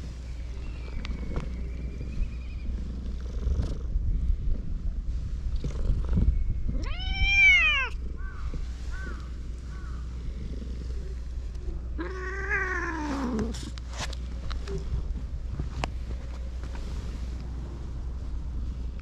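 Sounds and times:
steady low rumble: 0.0s - 19.0s
cat meowing: 6.8s - 8.0s, 12.0s - 13.4s.

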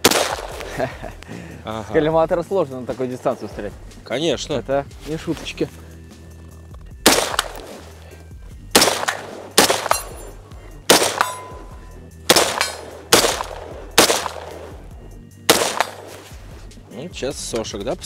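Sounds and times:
rifle shots with echo: 0.0s - 0.7s, 7.0s - 7.8s, 8.7s - 10.3s, 10.9s - 14.8s, 15.5s - 16.3s.

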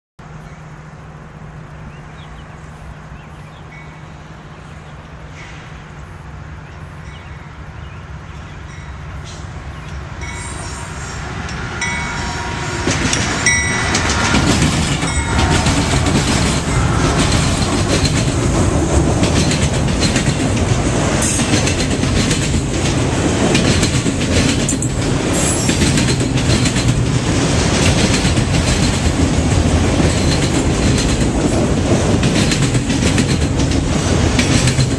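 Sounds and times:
freight train passing: 0.2s - 34.9s
wheels clacking over rail joints: 8.6s - 34.9s.

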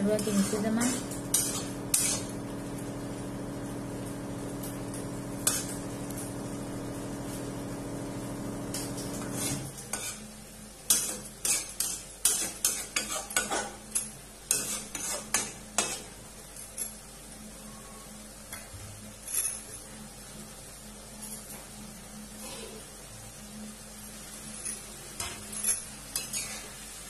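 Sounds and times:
steady low hum: 0.0s - 10.8s
faint sizzle: 0.0s - 27.0s
metal spoon scraping pan: 0.1s - 2.4s, 5.4s - 5.8s, 9.2s - 10.3s, 10.9s - 13.7s, 14.5s - 16.1s, 25.7s - 26.8s
spoon clanking against pan: 1.2s - 2.3s, 10.9s - 16.1s.

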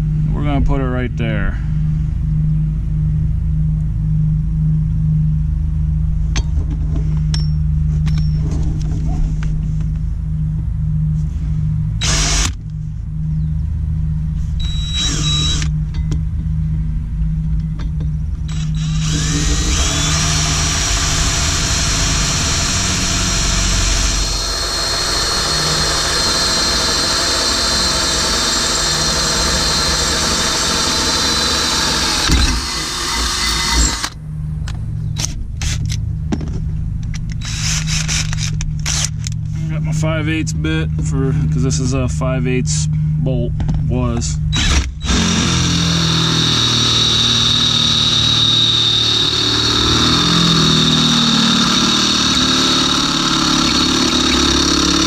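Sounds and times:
steady low hum: 0.0s - 55.0s
drill boring through metal: 12.0s - 12.6s, 14.6s - 15.7s, 18.5s - 34.2s, 37.4s - 38.3s, 44.5s - 55.0s.

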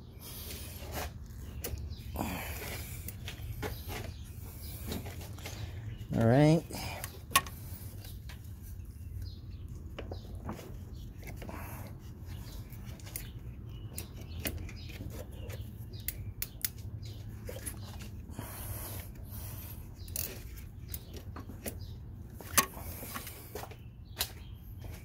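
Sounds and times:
tools clicking and tapping: 7.0s - 7.6s.

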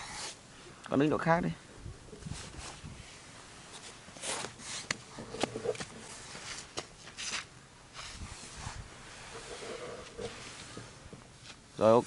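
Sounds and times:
toy bucket scraping sand: 4.2s - 10.9s.

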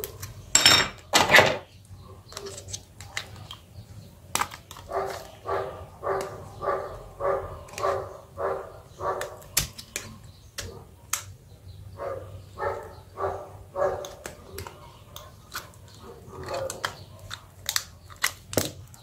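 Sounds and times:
dog barking: 4.9s - 9.4s, 12.0s - 14.2s, 16.0s - 17.4s.

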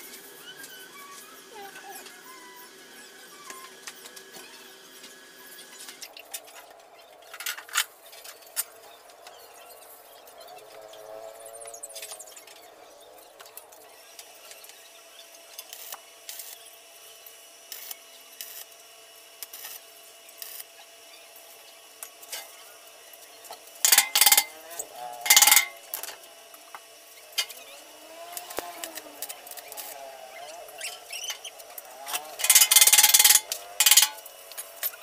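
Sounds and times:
welding arc crackling: 19.4s - 20.7s, 23.1s - 35.0s.

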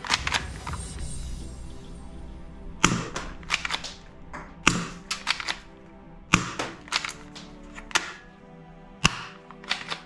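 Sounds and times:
toy pistol plastic clicks: 9.0s - 10.0s.

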